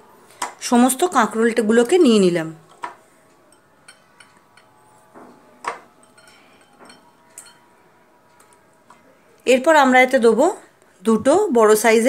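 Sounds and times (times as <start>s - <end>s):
glass and steel clinks: 5.9s - 7.7s.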